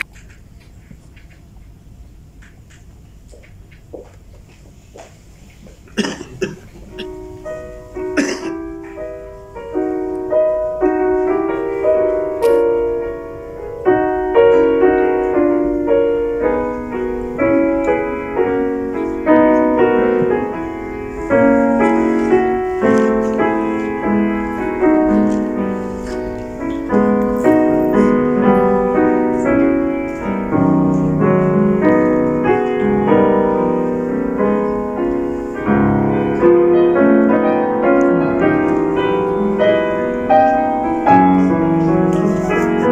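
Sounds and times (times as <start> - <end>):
grand piano quick notes: 5.8 - 42.9.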